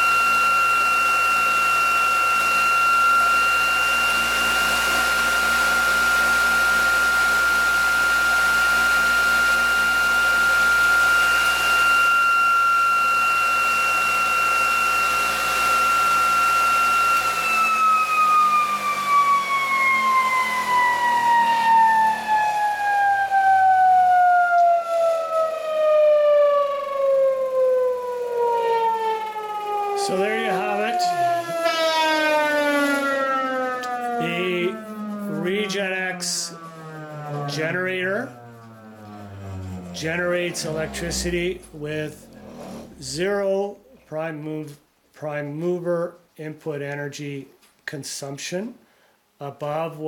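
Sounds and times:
generator whining: 0.0s - 44.0s
low motor hum: 15.5s - 43.3s.

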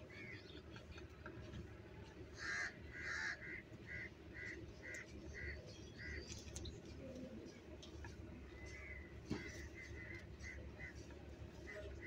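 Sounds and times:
crow cawing: 2.4s - 6.2s.

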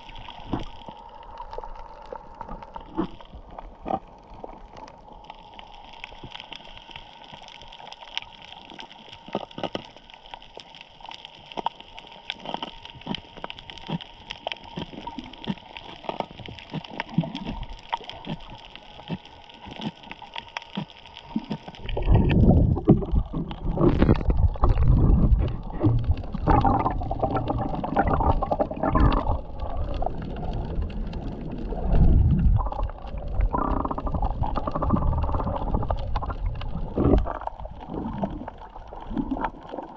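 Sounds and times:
faint underwater clicks and crackles: 0.0s - 39.9s
rumbling gurgling water wash: 21.4s - 39.9s.

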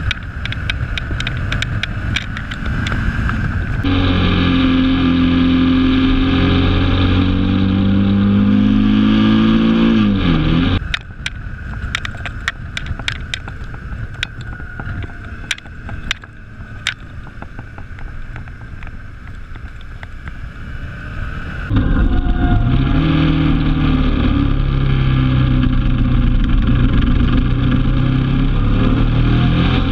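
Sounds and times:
sharp clicks: 0.0s - 3.4s, 10.8s - 20.4s
muffled wind rush: 0.0s - 4.3s, 9.4s - 29.9s
motorcycle engine running: 0.0s - 29.9s.

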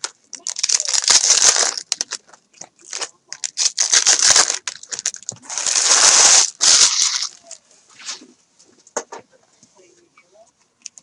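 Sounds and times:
foil wrappers crinkling and tearing: 0.0s - 7.6s.

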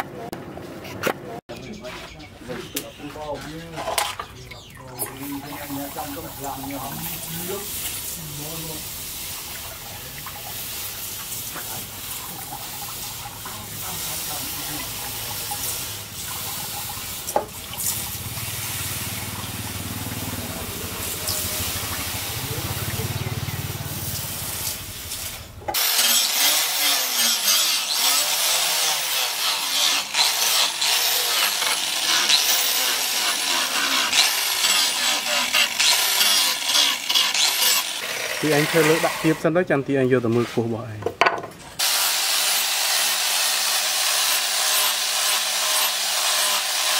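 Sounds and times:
angle grinder grinding steel: 2.1s - 39.6s, 41.8s - 46.9s
water pouring: 4.9s - 25.4s.

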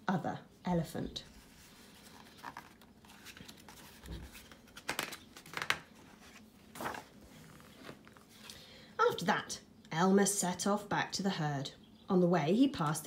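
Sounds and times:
book pages turning: 1.3s - 8.6s.

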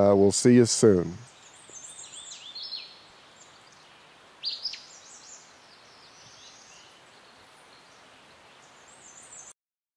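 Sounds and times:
birds chirping: 0.0s - 9.6s
outdoor background hiss: 0.0s - 9.6s.

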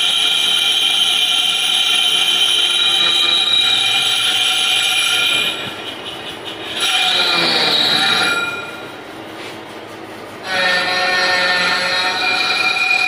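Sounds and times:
lathe machine running: 0.0s - 13.0s
lathe tool squealing: 0.0s - 13.0s.

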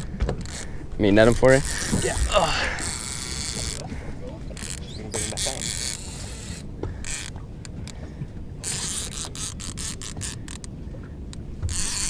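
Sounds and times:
fishing reel clicking: 0.0s - 0.7s, 1.3s - 2.0s, 2.8s - 3.9s, 4.5s - 8.0s, 8.6s - 10.7s, 11.7s - 12.0s.

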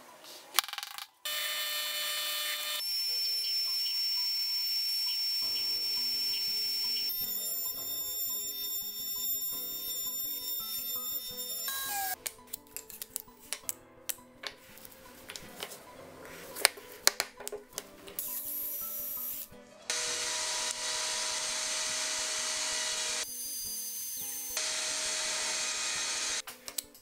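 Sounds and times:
power tool running: 1.3s - 12.2s, 19.9s - 23.4s, 24.2s - 26.4s
router whining: 1.3s - 12.2s, 19.9s - 23.2s, 24.6s - 26.4s.

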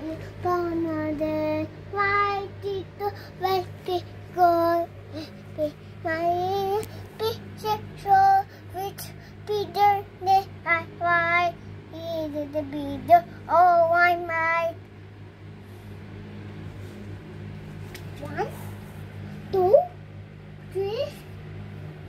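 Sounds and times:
girl singing: 0.0s - 14.8s
low steady hum: 0.0s - 22.0s.

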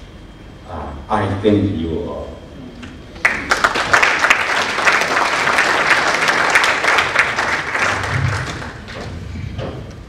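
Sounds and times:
audience applauding: 3.2s - 9.2s.

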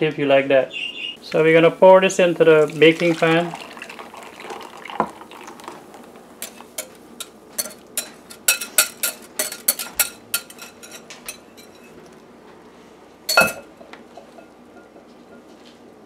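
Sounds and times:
whisk clinking against glass bowl: 6.4s - 11.9s, 13.3s - 14.9s.

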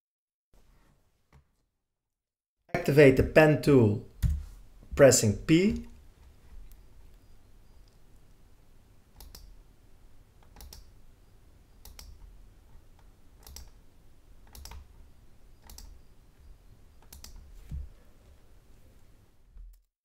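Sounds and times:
faint mouse clicks: 9.2s - 9.5s, 10.4s - 10.9s, 11.8s - 12.2s, 17.0s - 17.4s.

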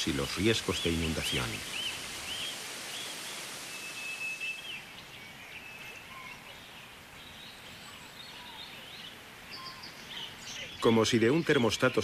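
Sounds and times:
bird chirps: 0.0s - 12.0s
soft hiss: 0.0s - 12.0s
short whistled bird calls: 1.7s - 4.9s.

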